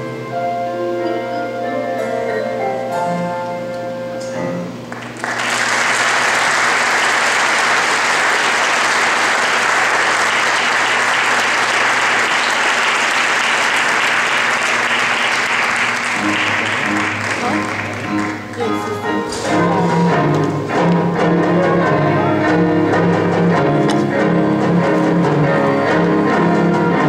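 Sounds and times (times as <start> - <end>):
orchestra held notes: 0.0 - 5.0, 6.1 - 27.0
audience applause: 4.9 - 18.6.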